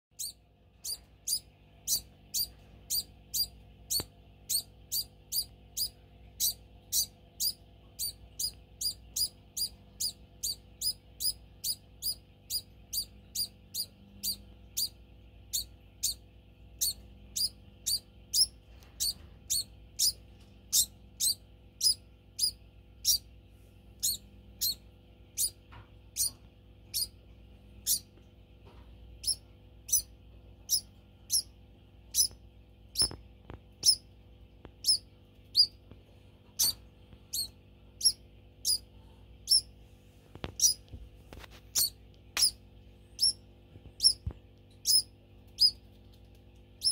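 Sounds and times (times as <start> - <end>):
degus squealing high peeps: 0.2 - 16.2, 16.8 - 23.3, 24.0 - 24.8, 25.4 - 25.6, 26.2 - 27.2, 27.8 - 28.1, 29.2 - 30.1, 30.7 - 31.5, 32.1 - 32.4, 33.0 - 33.2, 33.8 - 34.0, 34.8 - 35.8, 36.6 - 38.9, 39.5 - 39.7, 40.6 - 40.8, 41.8 - 42.6, 43.2 - 43.4, 44.8 - 45.8.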